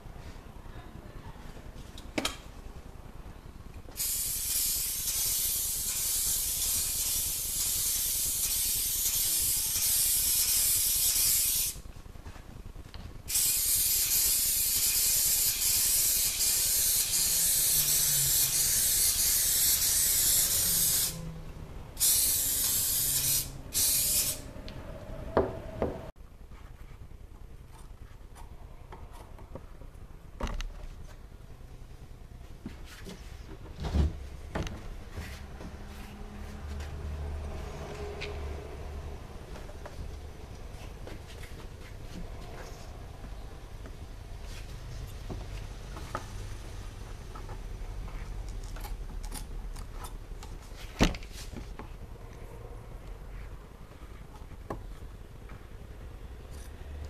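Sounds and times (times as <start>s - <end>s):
aerosol spray can hissing: 4.0s - 11.8s, 13.3s - 21.2s, 22.0s - 24.4s.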